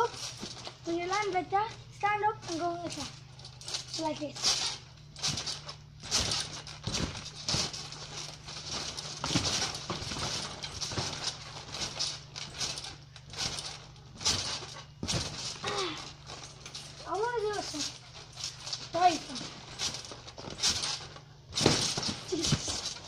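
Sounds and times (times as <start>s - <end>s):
rustling background: 0.0s - 23.0s
thuds on trampoline mat: 0.0s - 23.0s.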